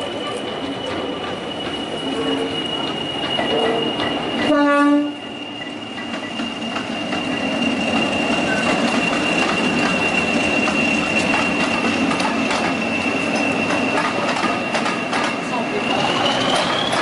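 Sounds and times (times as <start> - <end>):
high-pitched whistle: 0.9 - 11.8, 15.9 - 17.0
train horn blast: 3.5 - 5.2.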